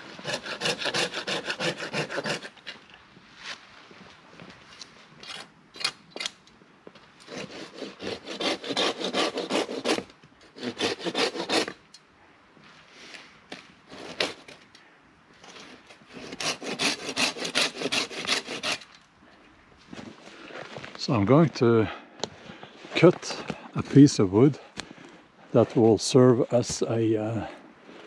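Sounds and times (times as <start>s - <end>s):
hand saw cutting wood: 0.0s - 2.8s, 7.2s - 11.8s, 13.9s - 14.6s, 16.1s - 18.9s.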